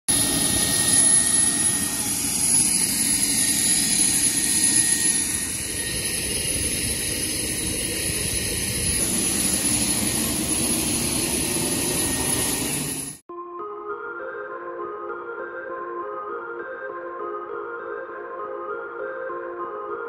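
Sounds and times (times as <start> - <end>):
aircraft engine rush: 0.1 - 13.2
high steady whine: 0.1 - 13.2.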